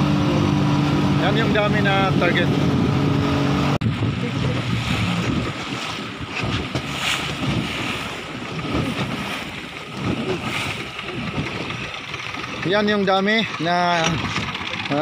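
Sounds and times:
wind buffeting microphone: 0:00.0 - 0:15.0
water splashing against boat hull: 0:03.8 - 0:15.0.

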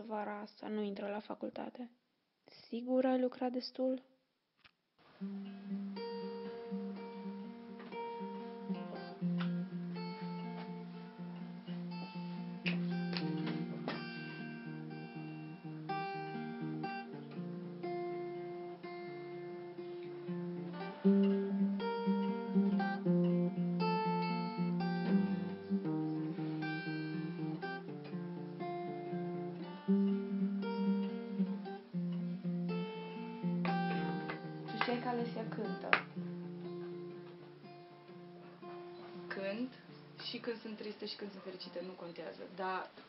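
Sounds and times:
acoustic guitar chords: 0:05.2 - 0:42.4.

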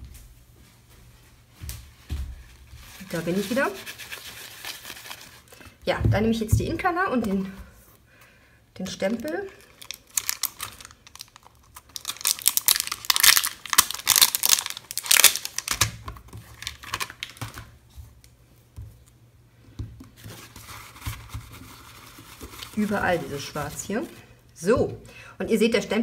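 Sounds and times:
plastic crinkling: 0:02.6 - 0:05.8, 0:08.9 - 0:17.8, 0:20.2 - 0:24.3.

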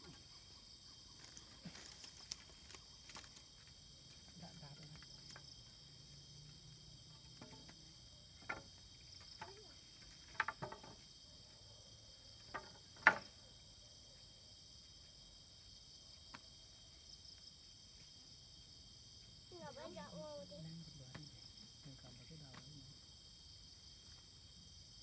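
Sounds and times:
crickets chirring: 0:00.0 - 0:25.0
wood knocking on wood: 0:10.3 - 0:11.0, 0:12.5 - 0:13.3.

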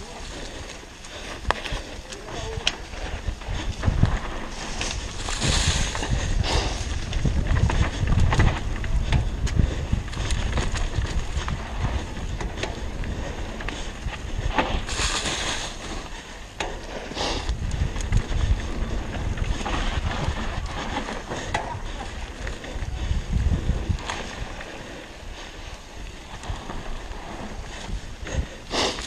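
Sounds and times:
bike clicking and rattling: 0:00.0 - 0:29.0
bike tyres rolling on dirt: 0:00.0 - 0:29.0
wind buffeting microphone: 0:00.0 - 0:29.0
hissing rush: 0:14.4 - 0:16.2.

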